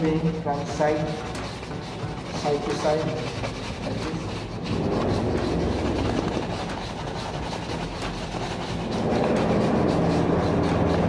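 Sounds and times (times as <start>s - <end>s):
shoe brushes buffing leather: 0.0s - 11.0s.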